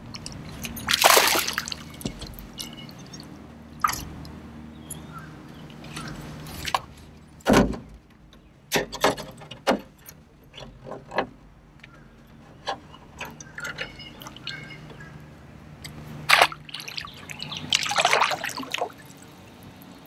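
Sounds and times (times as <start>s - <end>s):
knocks and clatters on a boat: 0.0s - 19.0s.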